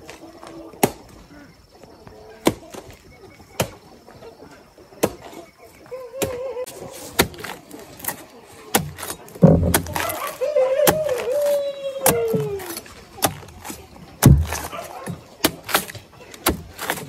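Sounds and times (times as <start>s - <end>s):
sharp chopping strikes: 7.1s - 10.3s, 12.0s - 17.0s.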